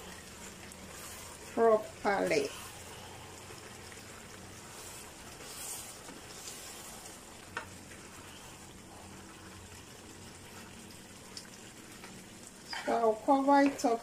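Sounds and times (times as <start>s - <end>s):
sauce sizzling in a frying pan: 0.0s - 14.0s
spatula scraping pan: 4.6s - 8.5s.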